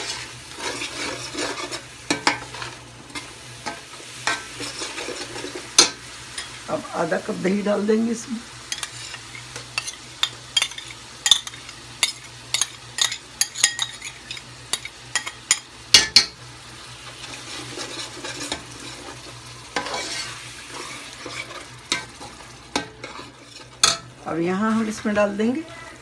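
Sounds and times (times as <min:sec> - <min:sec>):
metal skimmer scraping pot: 0:00.0 - 0:03.3, 0:17.3 - 0:26.0
masala sizzling: 0:00.0 - 0:26.0
metal spoon clinking and scraping: 0:09.8 - 0:15.6, 0:17.7 - 0:19.2, 0:19.8 - 0:24.0.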